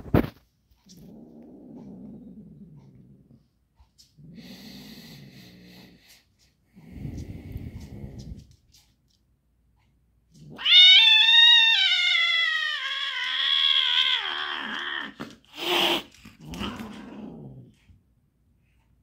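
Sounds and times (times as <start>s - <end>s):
cat yowling: 10.5s - 17.1s.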